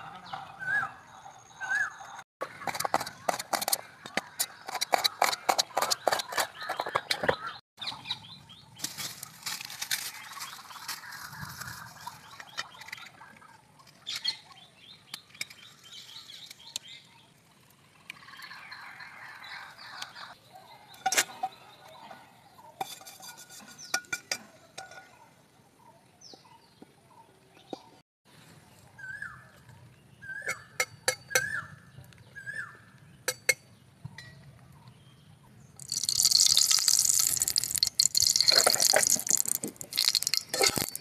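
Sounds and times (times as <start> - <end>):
birds chirping: 0.0 - 8.9, 10.1 - 22.8
metal utensils clinking: 35.9 - 41.0.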